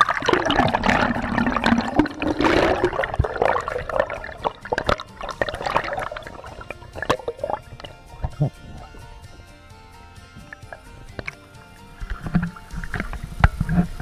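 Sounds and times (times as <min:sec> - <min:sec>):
bubbly clicks and pops: 0:00.0 - 0:09.0
water gurgling underwater: 0:00.0 - 0:09.1.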